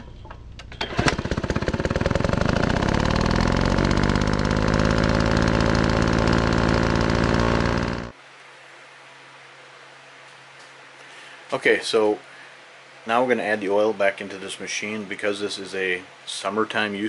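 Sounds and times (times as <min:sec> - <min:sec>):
engine running hard: 0:00.9 - 0:08.2.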